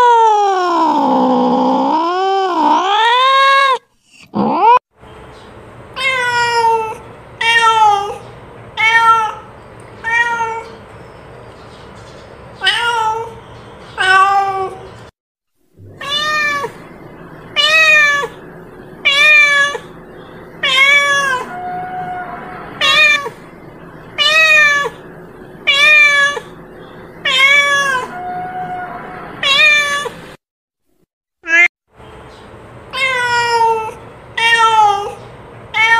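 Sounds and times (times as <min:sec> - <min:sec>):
cat meowing: 0:00.0 - 0:04.8, 0:06.0 - 0:10.8, 0:12.6 - 0:13.4, 0:14.0 - 0:14.9, 0:15.8 - 0:16.9, 0:17.5 - 0:18.4, 0:19.0 - 0:20.0, 0:20.6 - 0:23.4, 0:24.1 - 0:25.0, 0:25.6 - 0:26.6, 0:27.2 - 0:30.2, 0:31.4 - 0:31.7, 0:32.9 - 0:35.9.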